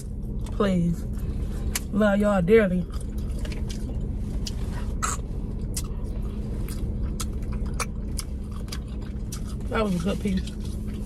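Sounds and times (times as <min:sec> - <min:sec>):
low hum: 0:00.0 - 0:11.0
wet chewing mouth sounds: 0:02.8 - 0:11.0.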